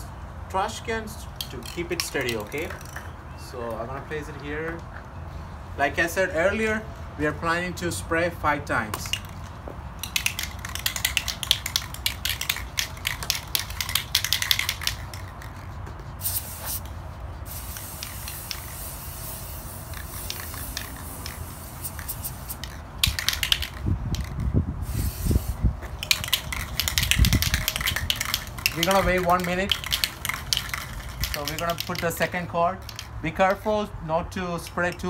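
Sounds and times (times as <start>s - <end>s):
mixing ball rattling in spray can: 1.4s - 3.0s, 9.0s - 33.6s
spray can clicks: 10.0s - 15.4s, 17.5s - 33.1s
aerosol spray hissing: 16.1s - 22.7s, 24.8s - 25.7s
wind buffeting microphone: 22.9s - 29.7s.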